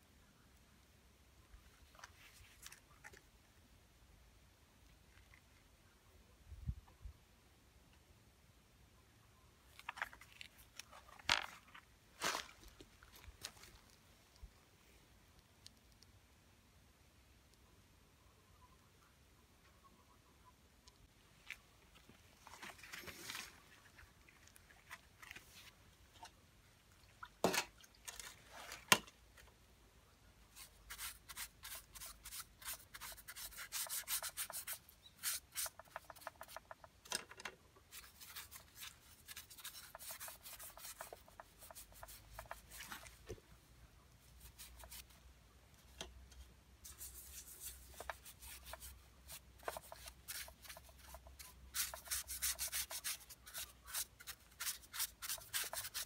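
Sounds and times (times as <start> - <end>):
brush scrubbing plastic: 30.5 - 36.8, 37.9 - 43.2, 46.8 - 56.0.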